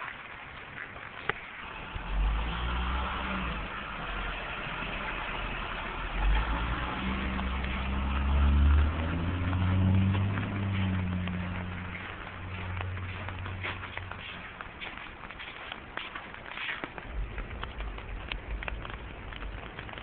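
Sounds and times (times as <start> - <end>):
car engine revving: 1.6 - 14.3.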